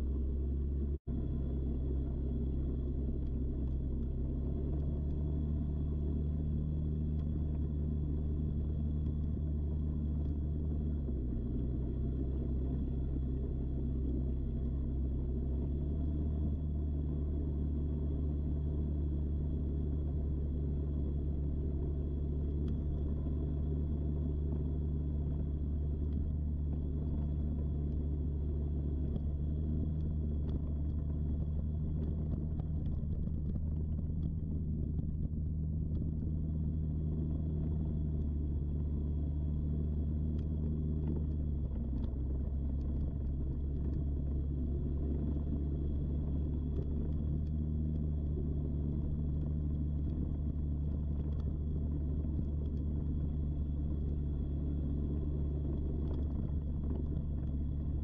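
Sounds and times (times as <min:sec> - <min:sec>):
motorbike engine rumble: 0:16.5 - 0:58.0.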